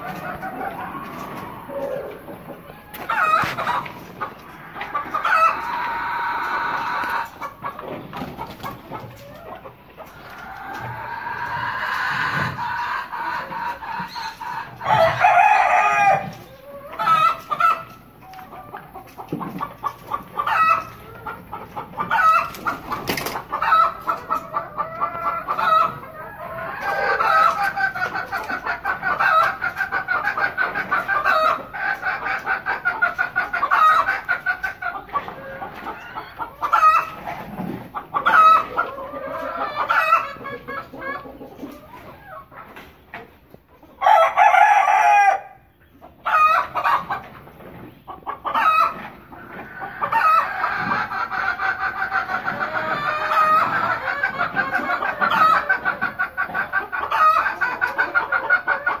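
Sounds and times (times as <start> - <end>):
roosters crowing: 0.0 - 8.4, 10.2 - 19.0, 19.6 - 32.8, 44.0 - 47.1, 48.5 - 59.0
hens clucking: 0.0 - 59.0.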